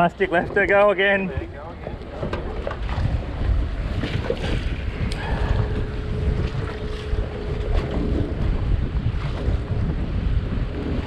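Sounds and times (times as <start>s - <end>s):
strong wind buffeting microphone: 0.0s - 11.0s.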